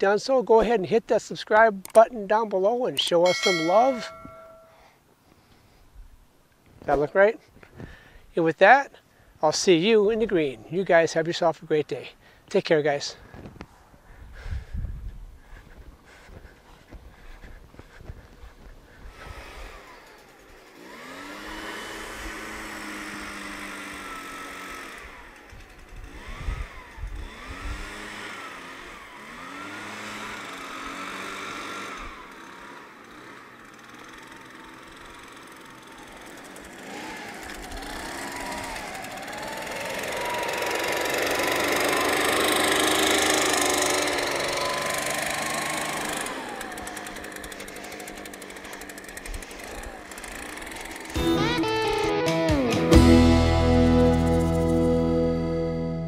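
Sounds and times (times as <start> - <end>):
leaf blower engine revving: 17.9 - 55.6.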